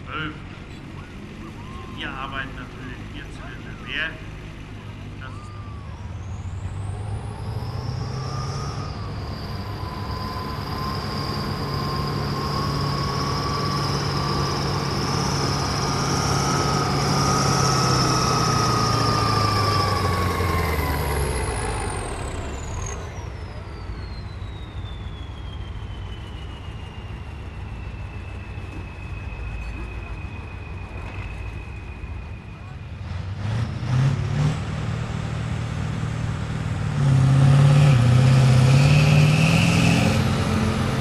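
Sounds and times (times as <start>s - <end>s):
tractor diesel engine under load: 0.0s - 41.0s
turbo whistle: 8.0s - 18.0s, 23.6s - 32.8s.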